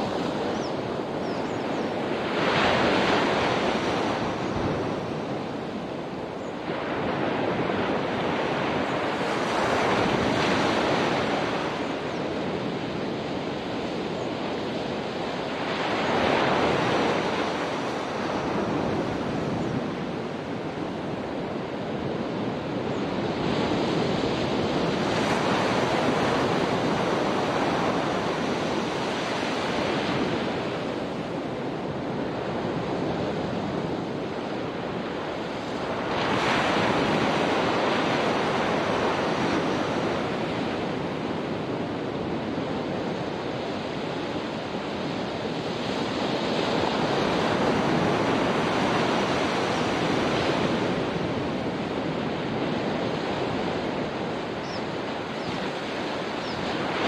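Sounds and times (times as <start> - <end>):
ocean surf washing onto beach: 0.0 - 57.0.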